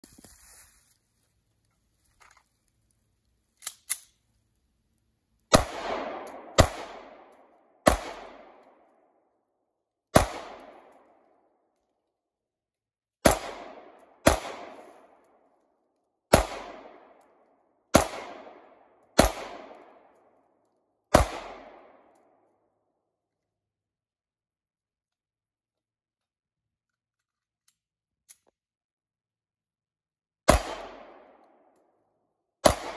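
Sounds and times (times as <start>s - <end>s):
pistol shots echoing: 5.5s - 8.9s, 10.1s - 11.2s, 13.2s - 15.2s, 16.3s - 20.2s, 21.1s - 22.2s, 30.5s - 31.7s, 32.6s - 32.9s.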